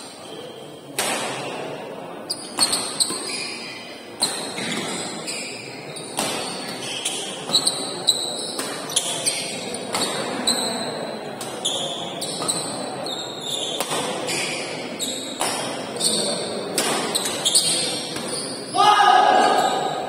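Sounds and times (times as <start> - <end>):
spectators chattering: 0.0 - 20.0
shoes squeaking on court: 2.3 - 18.8
rackets striking shuttlecock: 8.5 - 9.1, 13.7 - 14.5, 15.4 - 15.8, 16.7 - 18.4.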